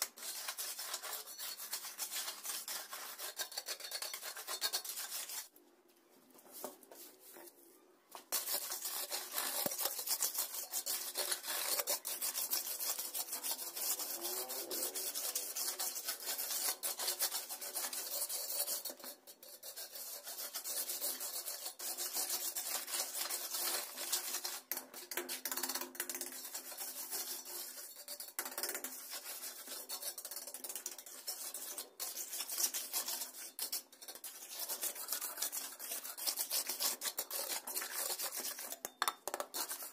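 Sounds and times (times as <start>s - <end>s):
trowel scraping wet mixture: 0.0s - 5.5s, 8.3s - 39.9s.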